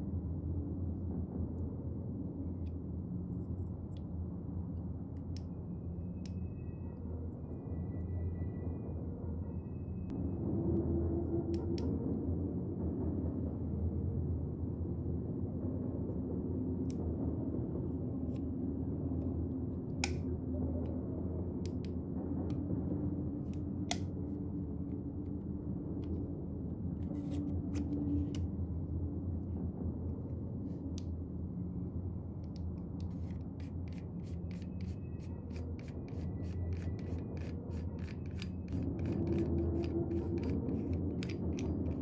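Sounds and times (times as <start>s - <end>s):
steady low hum: 0.0s - 42.0s
threaded metal part turning: 33.0s - 42.0s.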